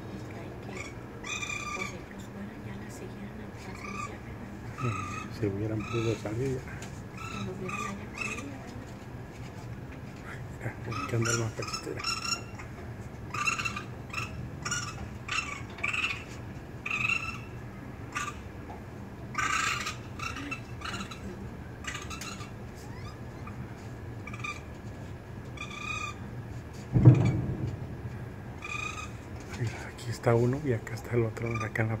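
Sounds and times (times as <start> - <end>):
raccoon kits crying: 0.6 - 2.2, 3.5 - 8.8, 10.7 - 18.6, 19.2 - 24.8, 25.5 - 26.4, 28.6 - 29.4.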